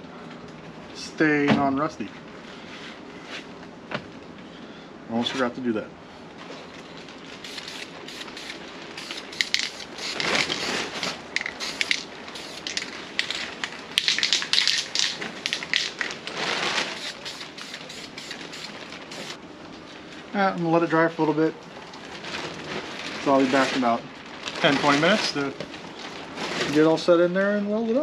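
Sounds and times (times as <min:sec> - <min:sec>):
aerosol can spraying hiss: 0:07.5 - 0:12.8, 0:17.0 - 0:19.4.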